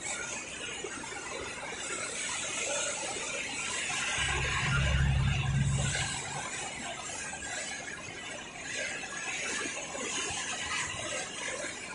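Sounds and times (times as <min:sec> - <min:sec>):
floodwater rushing: 0:00.6 - 0:11.9
low rumble: 0:04.0 - 0:06.9.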